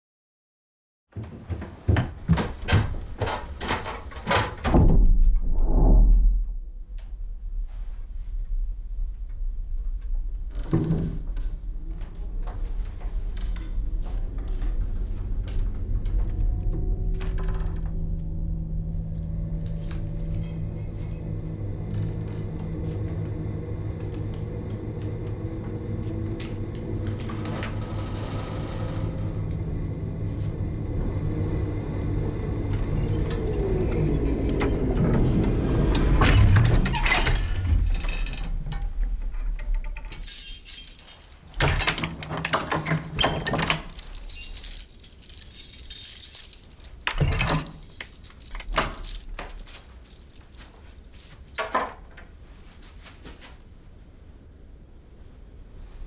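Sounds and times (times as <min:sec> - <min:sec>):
low drone sliding down: 0:05.4 - 0:39.6
metal keys jangling: 0:40.0 - 0:52.2.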